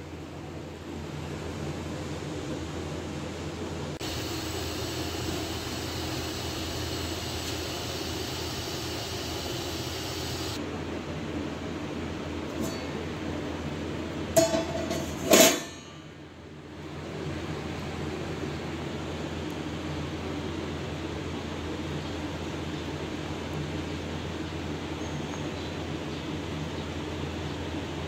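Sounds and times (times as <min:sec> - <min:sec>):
stove hiss and hum: 0:00.0 - 0:21.8
metallic clinks of cookware: 0:14.4 - 0:16.0.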